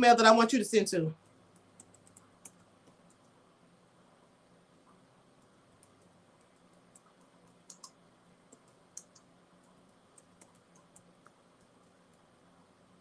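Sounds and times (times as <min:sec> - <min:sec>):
typing on a keyboard: 0:01.5 - 0:03.3, 0:05.7 - 0:12.2.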